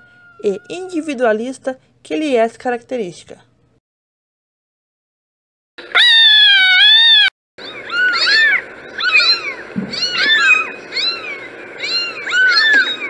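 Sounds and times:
kittens mewing: 5.8 - 13.0
kitten meowing loudly: 5.9 - 13.0.

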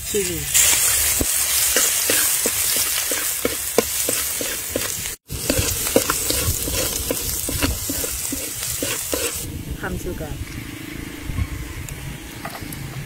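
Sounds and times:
garlic sizzling in hot oil: 0.0 - 9.5
metal spatula scraping pan: 1.6 - 9.5.

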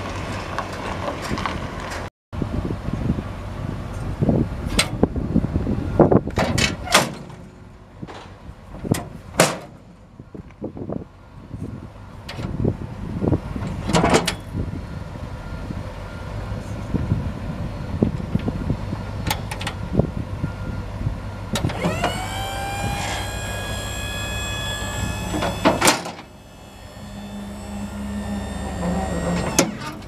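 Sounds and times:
truck engine idling: 21.2 - 30.0
motor whine: 21.5 - 30.0.

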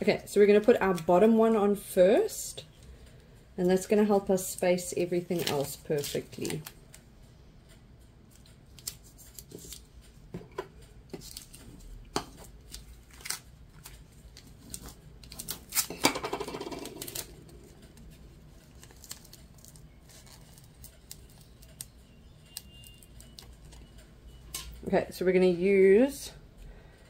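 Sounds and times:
vinyl decal crinkling: 5.1 - 7.0, 11.1 - 16.0, 16.8 - 24.1.

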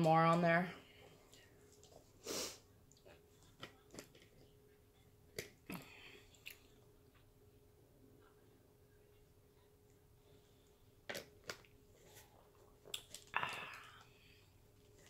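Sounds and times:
breathy noise: 13.3 - 14.6.

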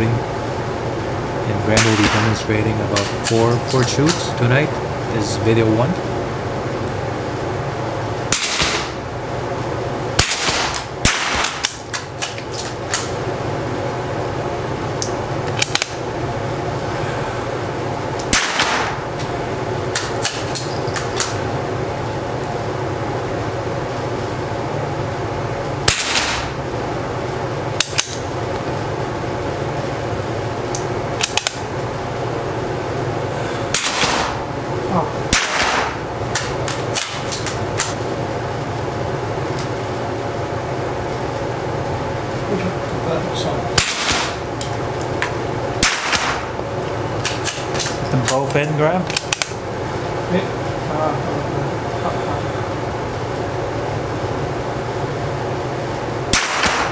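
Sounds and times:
rifle shots with echo: 1.8 - 2.4, 8.3 - 9.0, 10.2 - 11.7, 18.3 - 19.0, 25.9 - 26.5, 33.8 - 34.4, 35.3 - 36.0, 43.8 - 44.4, 45.8 - 46.4, 56.3 - 56.9.

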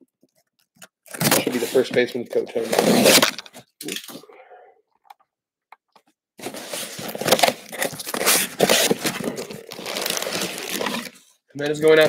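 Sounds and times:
cardboard box rustling: 6.4 - 11.2
plastic wrapping crinkling: 6.4 - 12.0.

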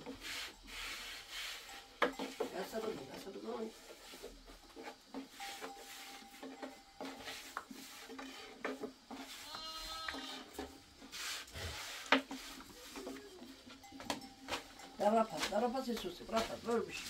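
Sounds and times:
sheep bleating: 9.4 - 10.5.

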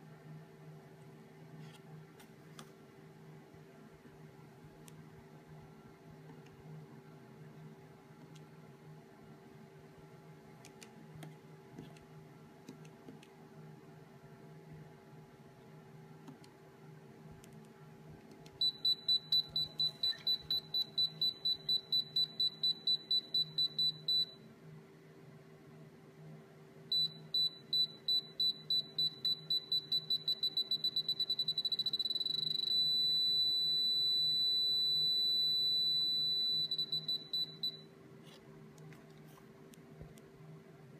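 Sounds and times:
electronic beeper beeping: 18.6 - 24.4.

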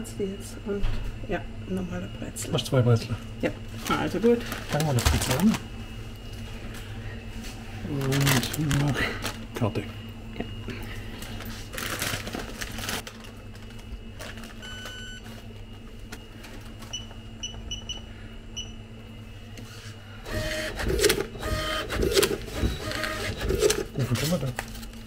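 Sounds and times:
electrical hum: 0.0 - 25.0
card terminal beeping: 14.4 - 15.4, 16.8 - 18.8, 20.3 - 24.0.

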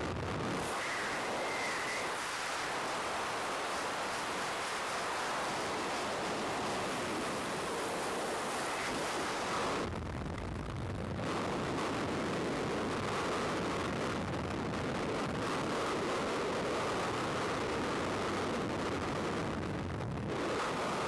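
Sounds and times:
wind rushing over microphone: 0.0 - 21.0.

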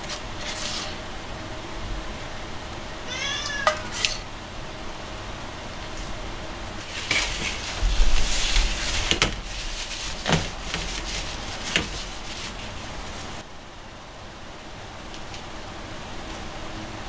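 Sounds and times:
handling noise: 6.8 - 13.4.

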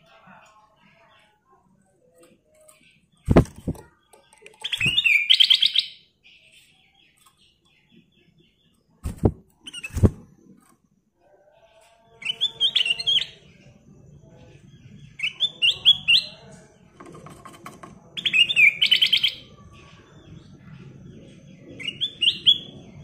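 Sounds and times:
bulbul singing: 2.2 - 10.2, 11.6 - 16.9, 18.0 - 20.5.

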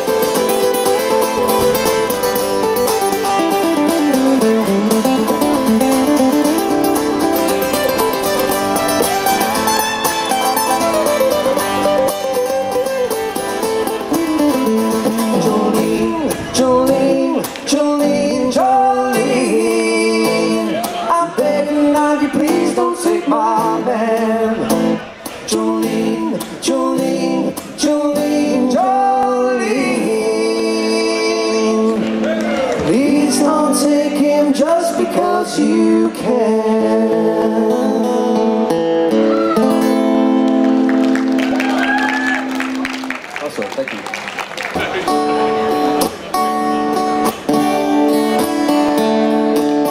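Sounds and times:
acoustic guitars playing: 0.0 - 43.3, 44.6 - 49.9
man singing: 14.4 - 38.7.

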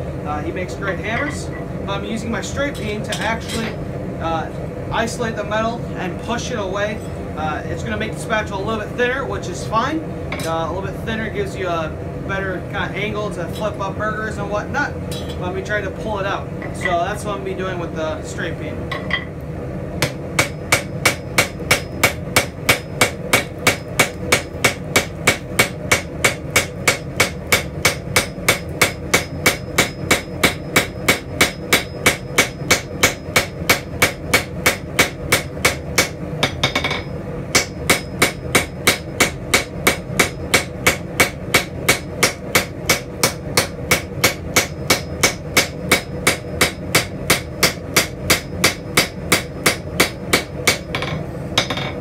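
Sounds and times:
hammer striking hot steel on anvil: 15.1 - 15.5, 18.9 - 19.4, 20.0 - 52.0.

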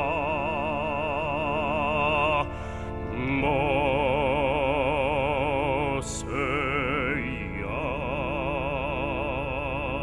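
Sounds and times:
low sustained instrumental backing: 0.0 - 10.0
person singing with wide vibrato: 0.0 - 10.0.

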